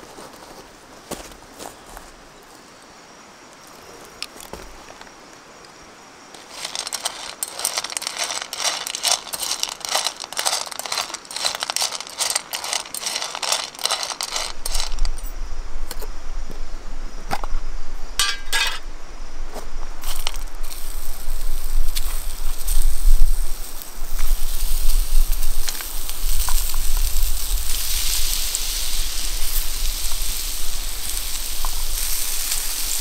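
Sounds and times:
stones rattling in a frying pan: 0:06.4 - 0:15.2, 0:20.0 - 0:33.0.

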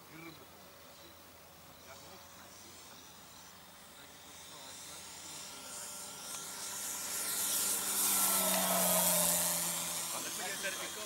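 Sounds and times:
model plane motor whirring: 0:01.2 - 0:11.0.

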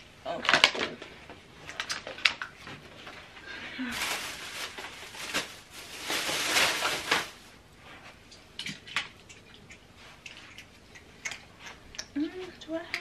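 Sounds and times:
rustling craft supplies: 0:03.9 - 0:07.5.

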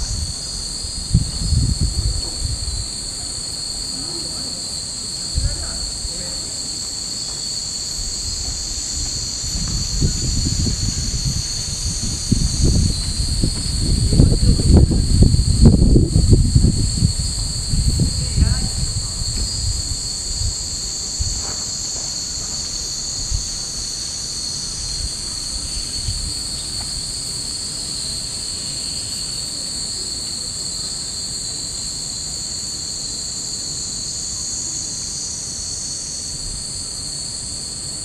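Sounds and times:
wind buffeting microphone: 0:00.0 - 0:06.6, 0:07.8 - 0:29.0
cicadas buzzing: 0:00.0 - 0:38.0.

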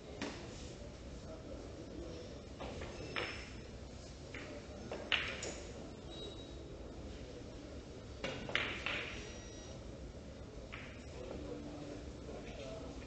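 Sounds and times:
billiard balls colliding: 0:02.6 - 0:03.6, 0:04.3 - 0:05.7, 0:08.2 - 0:09.2, 0:10.7 - 0:11.1
cue striking ball: 0:08.2 - 0:09.2.

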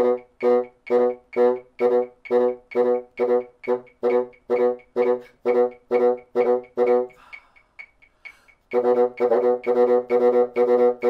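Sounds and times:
faint breathy noise: 0:07.1 - 0:08.7.

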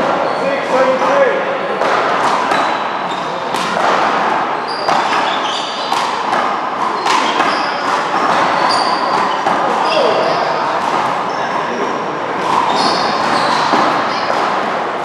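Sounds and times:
sneaker squeaks on court floor: 0:00.0 - 0:00.6, 0:02.3 - 0:03.8, 0:04.5 - 0:14.6.

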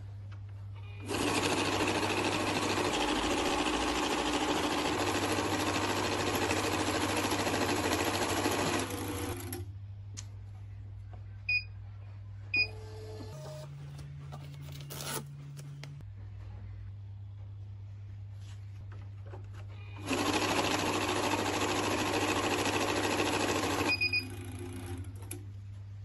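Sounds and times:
banknote counter running: 0:01.1 - 0:09.4, 0:20.0 - 0:24.8.

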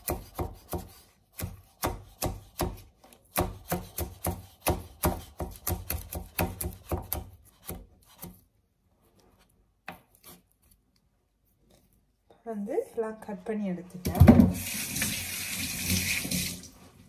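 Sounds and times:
knife chopping on cutting board: 0:00.0 - 0:08.4.

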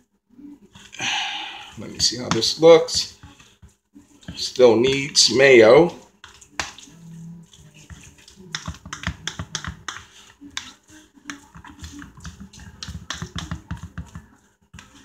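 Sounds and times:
fork scraping a bowl: 0:05.9 - 0:15.0.

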